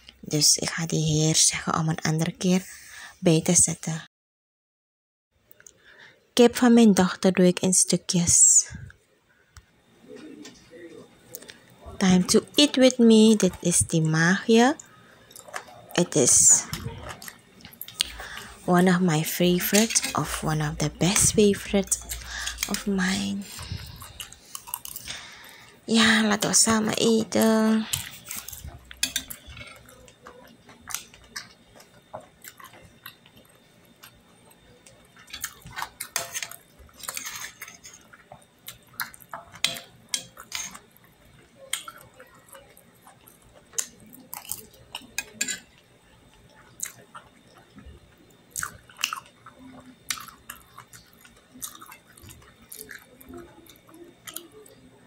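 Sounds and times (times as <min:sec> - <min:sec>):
person chewing and smacking: 0:23.5 - 0:25.2, 0:27.9 - 0:34.2, 0:34.8 - 0:54.8
spoon scraping on plate: 0:35.3 - 0:38.1.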